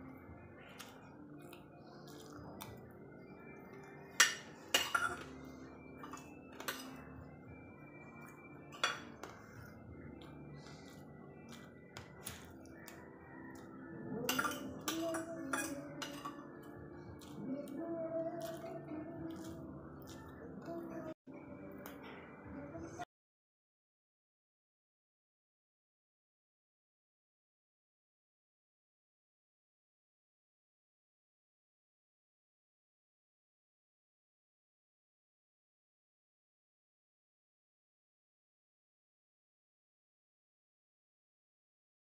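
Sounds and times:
cutlery scraping a ceramic plate: 0:04.2 - 0:05.4, 0:06.0 - 0:07.1, 0:08.7 - 0:09.4, 0:14.2 - 0:16.5.

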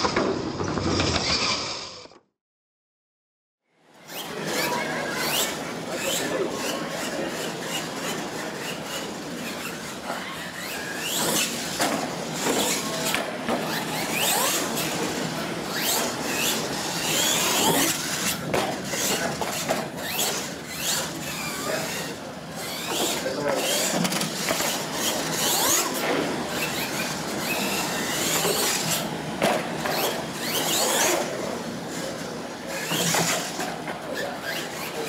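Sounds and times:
toy truck motor whining: 0:01.0 - 0:02.2, 0:04.0 - 0:29.2, 0:29.8 - 0:35.0
tyres squealing on concrete: 0:04.1 - 0:18.4, 0:19.0 - 0:29.1.

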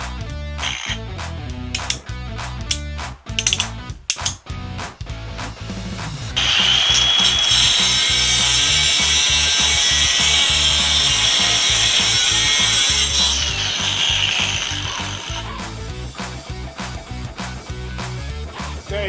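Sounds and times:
background music with beat: 0:00.0 - 0:07.8, 0:15.4 - 0:19.0
angle grinder cutting steel: 0:00.6 - 0:01.0, 0:01.8 - 0:02.1, 0:06.4 - 0:16.3.

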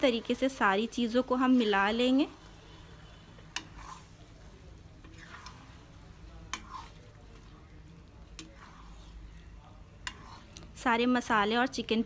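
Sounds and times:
ladle stirring wet food: 0:00.0 - 0:11.9
ladle clicking against pan: 0:06.5 - 0:06.9, 0:10.0 - 0:10.4.

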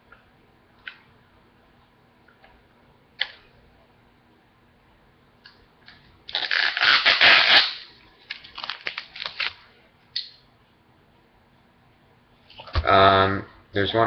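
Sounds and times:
plastic crackling: 0:06.3 - 0:09.6
plastic packaging ripping: 0:06.3 - 0:09.6.

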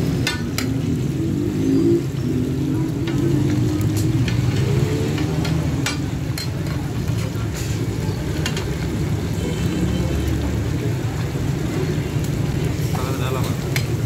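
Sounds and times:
fish sizzling in oil: 0:00.0 - 0:14.0
metal spatulas tapping and scraping: 0:00.1 - 0:00.8, 0:03.0 - 0:08.8.

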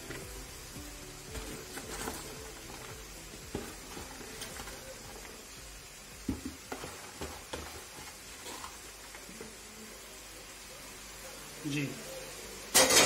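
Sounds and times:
cabbage rustling: 0:00.0 - 0:05.4.

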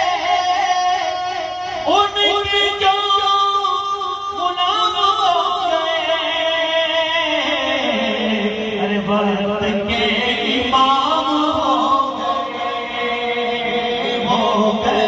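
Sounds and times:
man singing through a microphone: 0:00.0 - 0:15.0.

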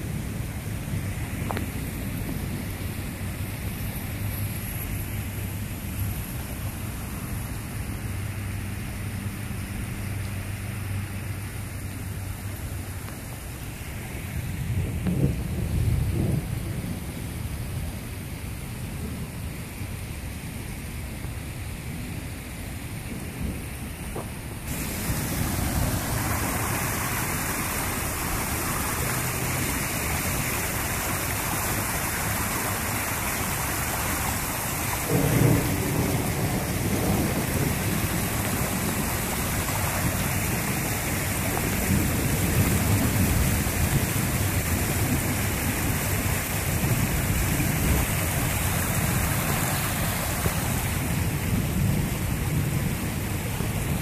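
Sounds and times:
strong wind: 0:00.0 - 0:09.3, 0:11.4 - 0:54.0
heavy rain: 0:00.0 - 0:54.0
low thunder rumble: 0:14.4 - 0:19.9, 0:22.9 - 0:54.0.

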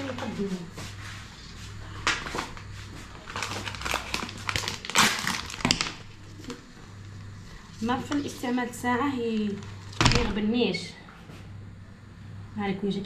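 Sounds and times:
steady low hum: 0:00.0 - 0:13.0
plastic packet crinkling: 0:03.2 - 0:06.6.

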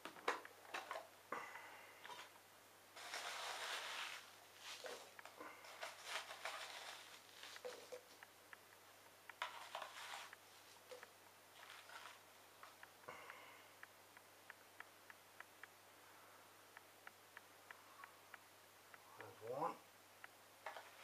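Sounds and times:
rustling through cotton wool: 0:03.0 - 0:07.9.

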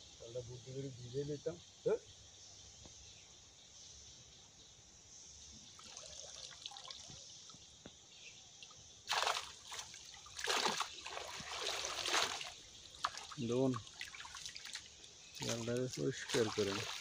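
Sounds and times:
water trickling: 0:05.6 - 0:07.7, 0:08.5 - 0:17.0
water splashing: 0:09.1 - 0:17.0.

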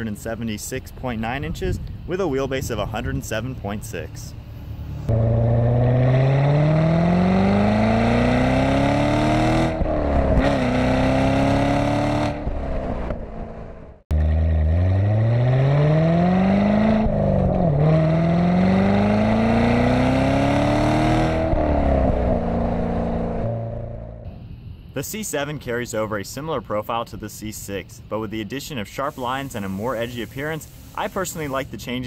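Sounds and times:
car engine accelerating hard: 0:05.0 - 0:24.3.

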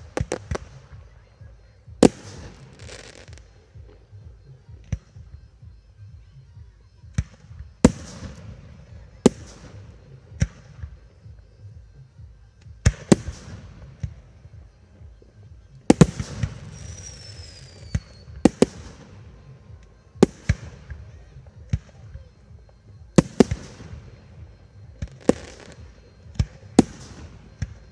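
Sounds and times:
fireworks bangs: 0:00.0 - 0:05.4, 0:12.7 - 0:27.9.

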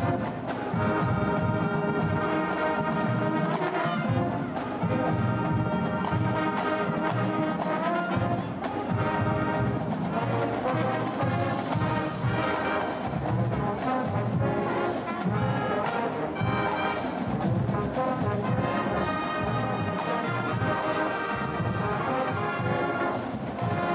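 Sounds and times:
drum beat: 0:00.0 - 0:23.9
marching band brass playing: 0:00.0 - 0:23.9.

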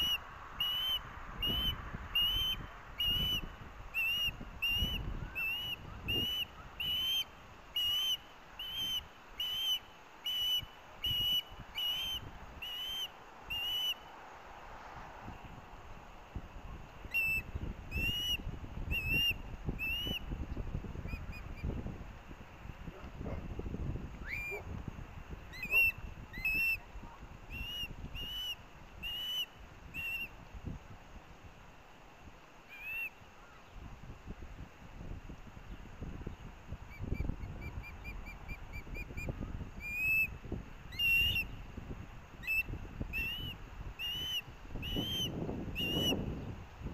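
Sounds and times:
osprey whistled begging calls: 0:00.0 - 0:14.1, 0:17.0 - 0:20.3, 0:24.2 - 0:24.7, 0:25.5 - 0:26.9, 0:27.5 - 0:30.4, 0:32.7 - 0:33.7, 0:36.9 - 0:40.3, 0:40.9 - 0:41.5, 0:42.4 - 0:46.2.

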